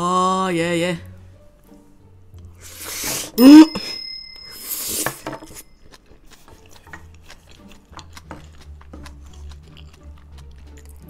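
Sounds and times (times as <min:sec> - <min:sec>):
chewing food: 0:05.6 - 0:11.0.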